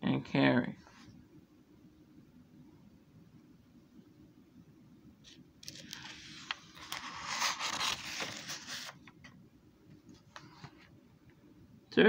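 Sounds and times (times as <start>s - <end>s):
paper pages turning: 5.3s - 9.4s.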